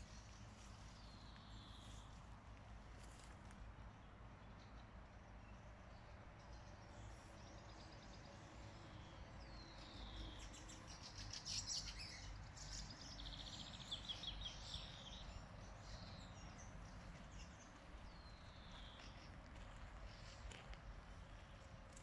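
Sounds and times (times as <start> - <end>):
songbird singing: 0.0 - 22.0
faint low background rumble: 12.6 - 22.0.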